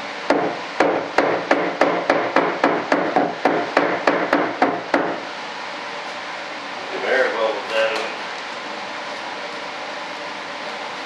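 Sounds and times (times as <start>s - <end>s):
rapid knocks on mold box: 0.3s - 5.2s.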